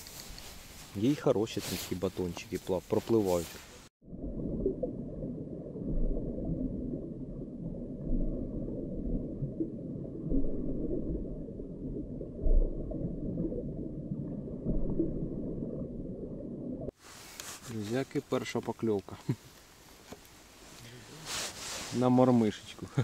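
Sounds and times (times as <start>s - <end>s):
underwater rumble and gurgling: 4.0s - 16.9s.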